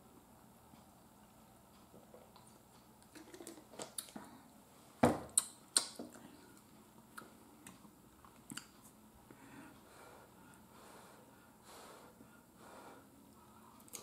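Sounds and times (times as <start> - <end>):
plastic bottle set down on table: 5.0 - 5.3.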